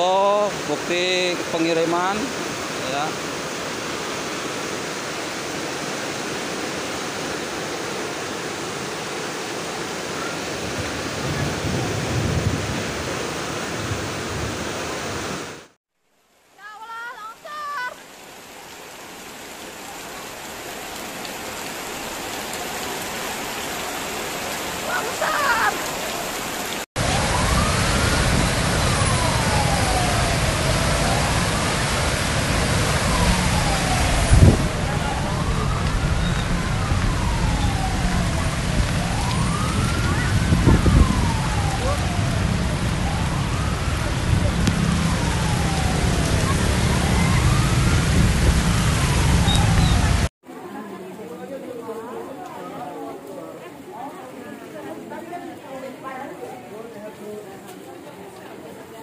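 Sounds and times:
floodwater rushing: 0.0 - 59.0
rain: 0.0 - 59.0
siren wailing: 24.8 - 50.3.

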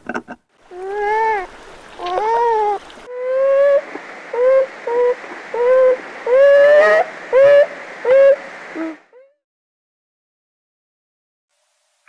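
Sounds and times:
beaver whining calls: 0.7 - 9.0.

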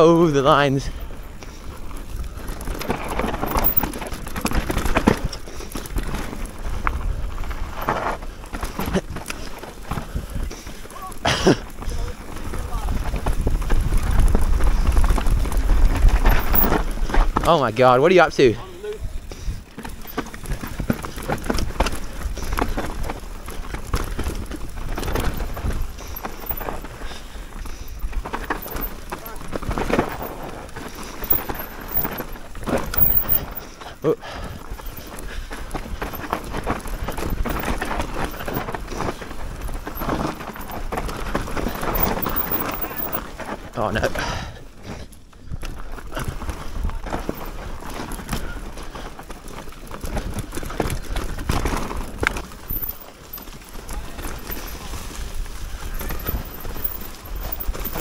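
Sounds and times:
bike rattling and knocking: 0.0 - 58.0
bike tyres on dirt: 0.0 - 58.0
wind rumbling on microphone: 11.8 - 17.5, 45.4 - 58.0
wind rumble on microphone: 12.4 - 17.4.

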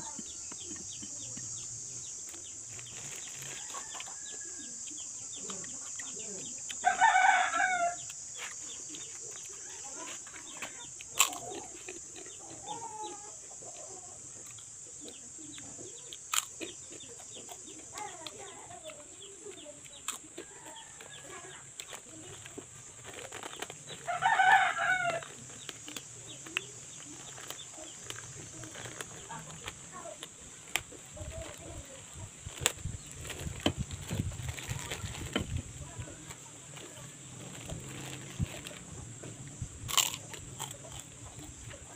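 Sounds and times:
chicken calls: 2.4 - 29.8
rooster crowing: 6.8 - 8.1, 24.0 - 25.4.

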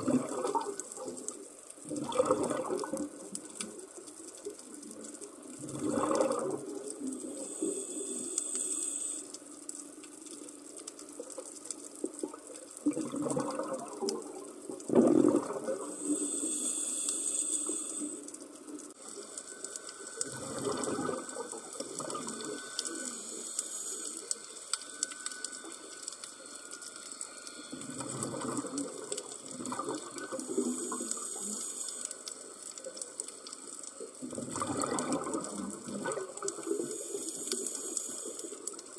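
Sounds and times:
bubbling exhalation underwater: 0.0 - 0.8, 1.8 - 3.1, 5.6 - 6.8, 12.8 - 15.9, 20.2 - 22.4, 27.8 - 31.0, 34.2 - 36.6
regulator inhalation hiss: 7.2 - 9.8, 15.8 - 20.2, 21.3 - 28.0, 30.3 - 33.2, 36.5 - 38.9.

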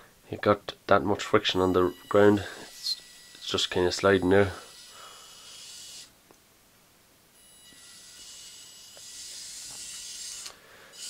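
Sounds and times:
small electric motors whirring: 1.9 - 6.1, 7.4 - 11.0.

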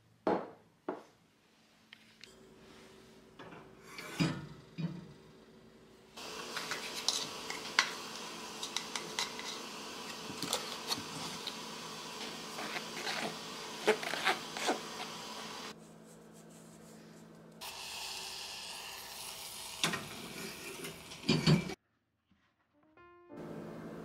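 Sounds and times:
liquid sizzling in a pan: 6.2 - 15.7, 17.6 - 21.8
wooden spoon scraping a metal sieve: 6.5 - 8.0, 8.6 - 11.6, 12.2 - 15.2
soft piano music: 22.8 - 24.0.

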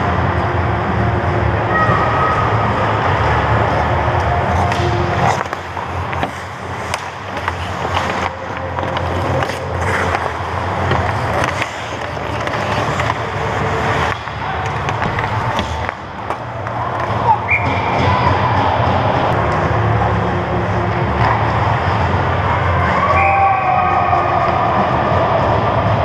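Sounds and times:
hockey sticks and puck clacking: 0.0 - 26.0
skate blades scraping on ice: 2.4 - 22.3.

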